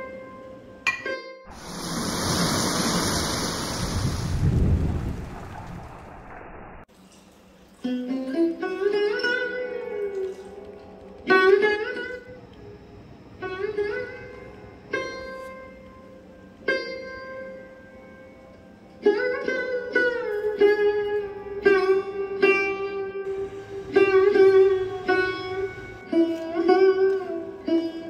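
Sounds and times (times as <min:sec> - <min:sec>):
plucked string instrument music: 0:07.8 - 0:28.0.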